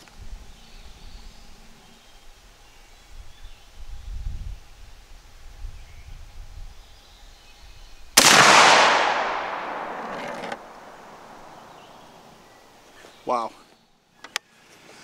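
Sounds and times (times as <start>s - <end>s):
shotgun shot with echo: 8.2s - 11.8s.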